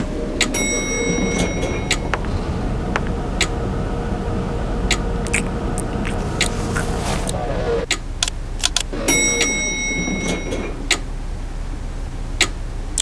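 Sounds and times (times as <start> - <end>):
lift mechanical hum: 0.0 - 13.0
sharp clicks: 7.9 - 8.9, 12.4 - 13.0.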